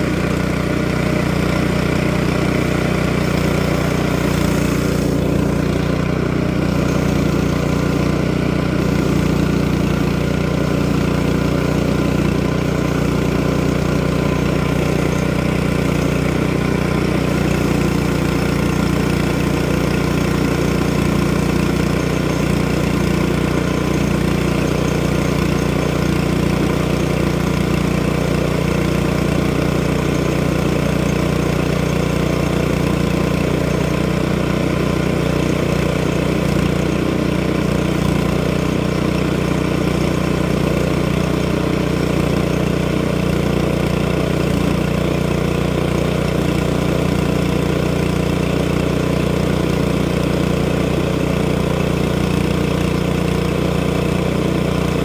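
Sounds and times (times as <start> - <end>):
small gasoline engine running: 0.0 - 55.0.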